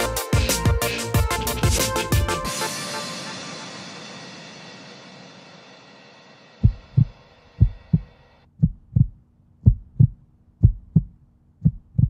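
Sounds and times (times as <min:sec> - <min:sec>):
electronic music: 0:00.0 - 0:05.8
heartbeat thumps: 0:00.4 - 0:02.5, 0:06.6 - 0:12.0.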